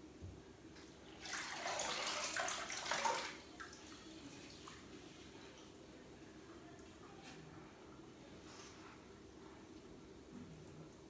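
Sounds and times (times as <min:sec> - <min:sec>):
tap water running: 0:01.0 - 0:05.2.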